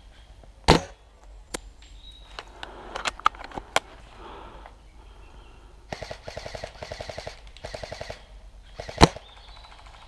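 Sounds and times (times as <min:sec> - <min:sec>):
airsoft gun automatic fire: 0:05.9 - 0:08.2, 0:08.8 - 0:10.0.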